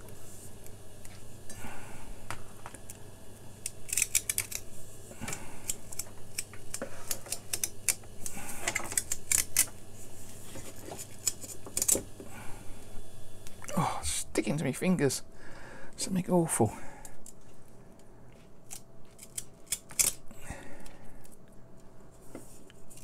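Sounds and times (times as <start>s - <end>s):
adhesive strip peeling clicks: 3.6s - 4.6s, 5.6s - 9.7s, 18.7s - 20.2s.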